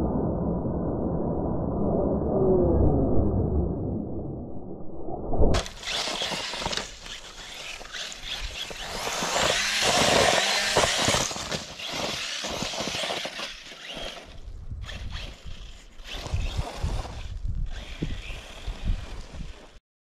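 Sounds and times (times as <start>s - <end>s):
tyres scattering gravel: 5.6s - 14.5s
rc truck electric motor whine: 5.6s - 19.8s.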